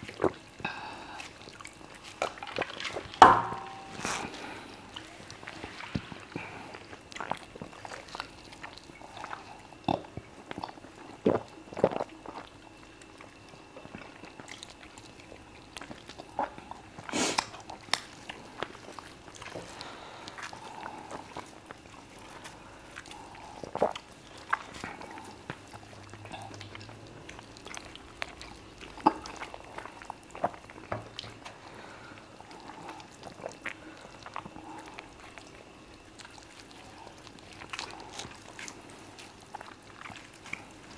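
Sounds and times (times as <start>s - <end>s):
chewing: 0.0s - 40.9s
lip smacks: 15.8s - 18.7s.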